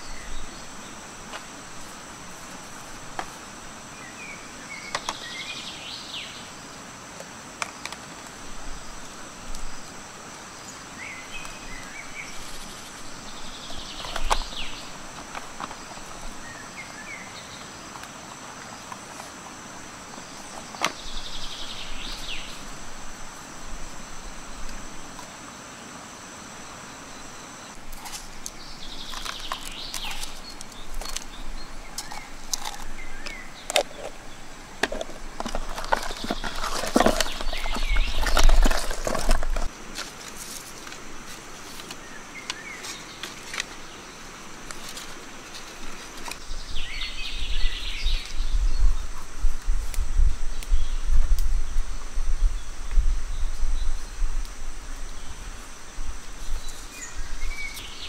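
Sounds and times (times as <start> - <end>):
high-pitched insect drone: 0.0 - 39.8
bird calling: 27.1 - 39.7.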